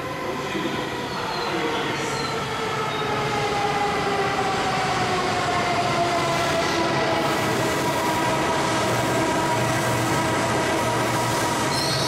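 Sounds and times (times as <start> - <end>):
train rushing noise: 0.0 - 12.0.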